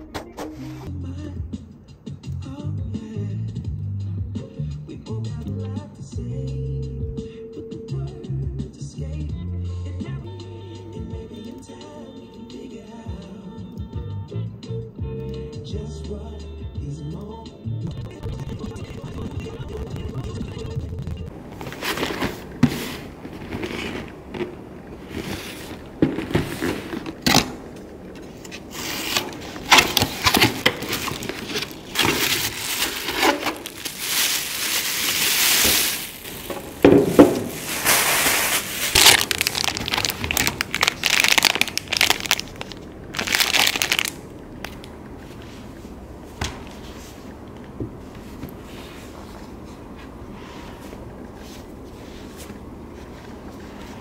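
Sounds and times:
plastic packaging crinkling: 21.4s - 44.9s
cardboard boxes handled: 21.5s - 42.4s.

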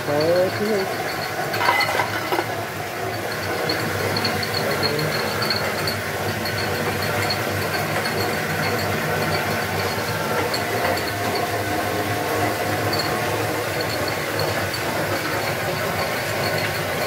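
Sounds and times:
turbine and generator humming: 0.0s - 17.0s.

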